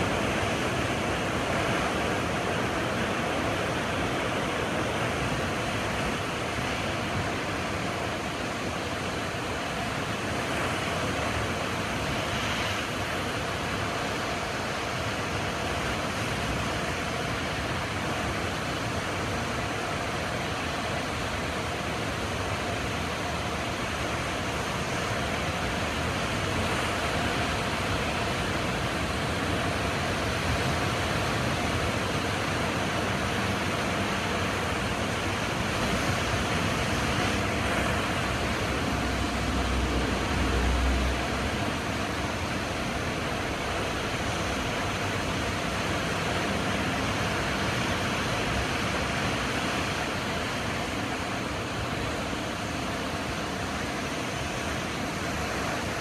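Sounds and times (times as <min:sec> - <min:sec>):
ocean surf breaking over rocks: 0:00.0 - 0:56.0.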